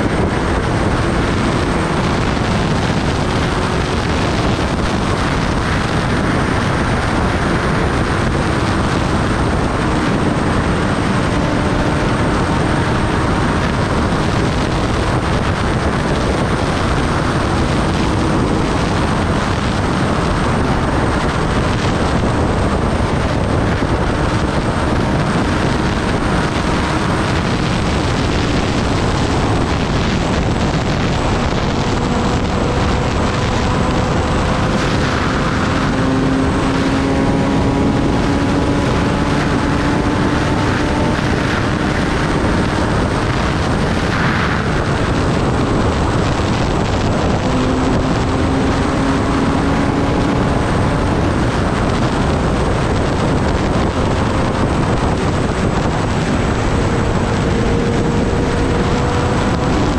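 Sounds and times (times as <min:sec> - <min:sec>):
wind rush over microphone: 0:00.0 - 0:59.9.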